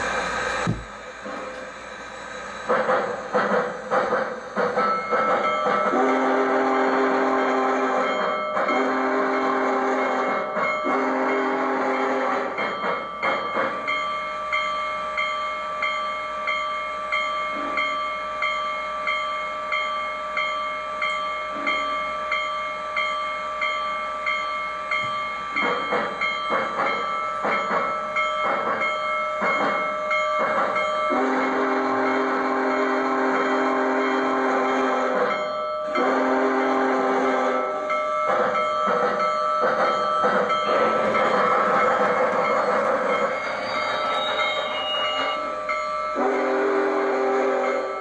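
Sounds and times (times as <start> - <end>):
rhythmic steam chuffs: 0.0 - 48.0
model train whistle blasts: 5.8 - 12.6, 31.1 - 37.9, 43.4 - 48.0.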